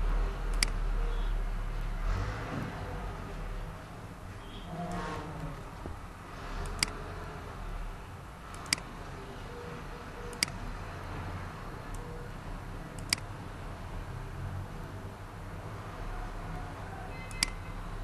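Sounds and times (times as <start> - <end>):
computer mouse clicks: 0.5 - 0.8, 6.6 - 7.1, 8.5 - 8.9, 10.3 - 10.6, 12.9 - 13.3, 17.3 - 17.6.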